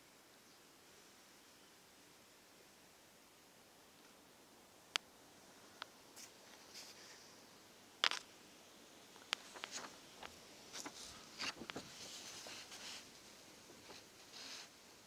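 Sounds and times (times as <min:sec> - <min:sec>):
paper rustling: 0:09.2 - 0:14.8.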